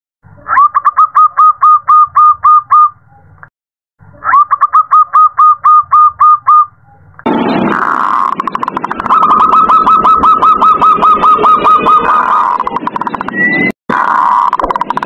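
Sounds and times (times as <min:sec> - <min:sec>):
dove cooing: 0:00.5 - 0:02.9, 0:07.7 - 0:13.0
loud noisy sound: 0:07.2 - 0:15.0.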